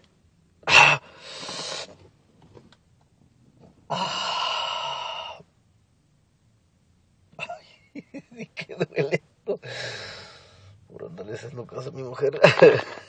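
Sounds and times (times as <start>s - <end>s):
man's pained breathy sighs: 3.9s - 5.4s, 9.6s - 10.7s.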